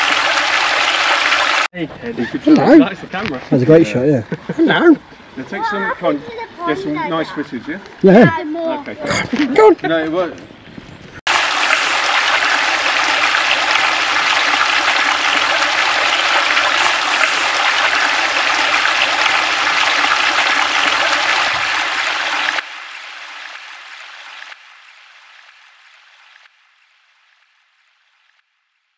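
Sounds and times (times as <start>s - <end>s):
water splashing down rock cascades: 0.0s - 1.7s, 11.3s - 25.8s.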